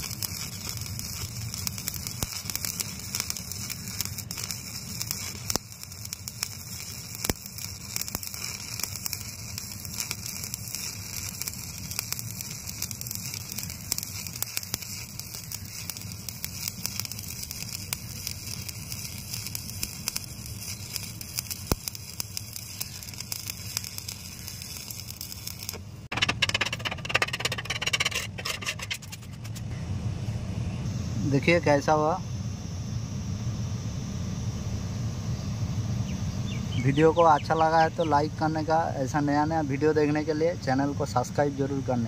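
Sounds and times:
welding arc crackling hiss: 0.0s - 29.7s, 31.2s - 32.2s, 36.0s - 42.0s
scraping on metal: 26.1s - 29.7s.

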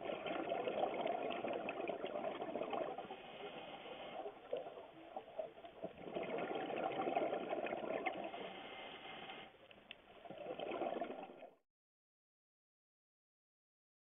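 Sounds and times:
diver's breath bubbling underwater: 0.0s - 4.9s, 5.9s - 8.9s, 10.2s - 11.6s.

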